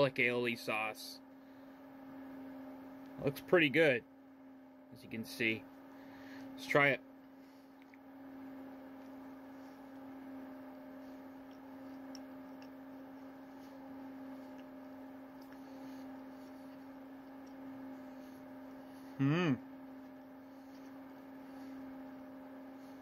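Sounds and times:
low electrical hum: 0.0s - 23.0s
man chewing: 11.2s - 18.0s.

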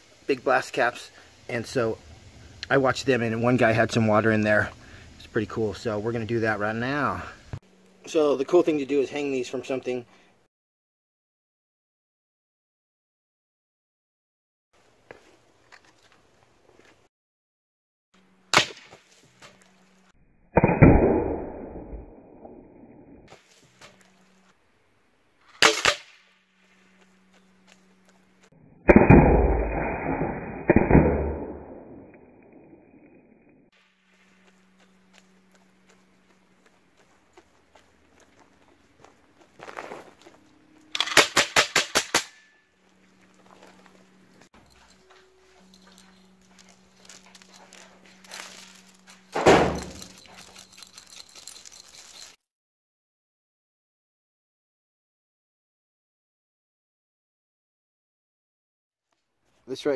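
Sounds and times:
steady low hum: 1.1s - 10.5s, 26.4s - 29.7s, 33.8s - 41.0s, 42.4s - 52.0s
sharp gunshot crack: 18.5s - 19.0s, 20.6s - 21.6s, 25.5s - 26.3s, 28.9s - 32.0s, 41.0s - 42.4s
loud thump: 49.4s - 50.0s.

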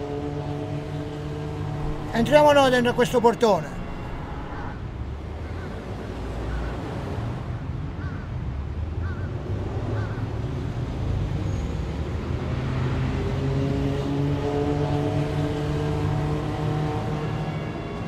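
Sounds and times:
road traffic rumble: 0.0s - 18.0s
pitched multi-tone hum: 1.6s - 4.9s.

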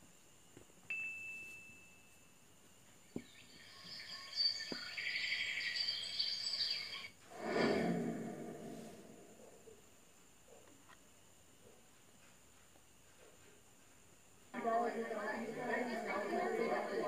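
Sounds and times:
louder lower sound: 7.3s - 9.5s.

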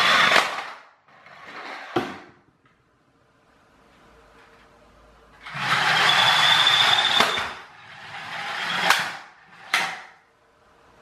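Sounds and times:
clockwork toy car whirring: 5.4s - 9.8s.

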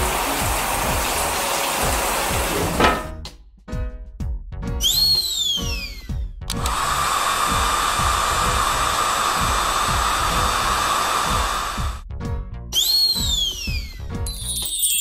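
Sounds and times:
cartoon hair dryer hum: 0.0s - 2.6s, 5.7s - 12.0s
background music with steady beat: 0.0s - 14.6s
falling whistle: 4.8s - 6.2s, 12.7s - 14.0s.

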